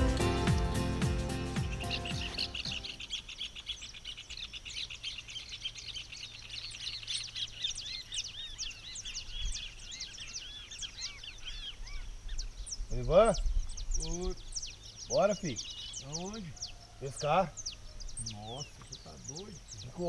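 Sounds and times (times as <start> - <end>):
background music: 0.0 - 3.1
small birds chirping: 0.0 - 20.0.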